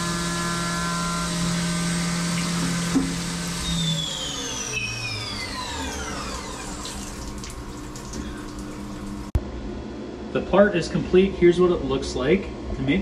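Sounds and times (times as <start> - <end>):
mill spindle whine: 0.0 - 9.4
coolant splashing: 4.6 - 9.4.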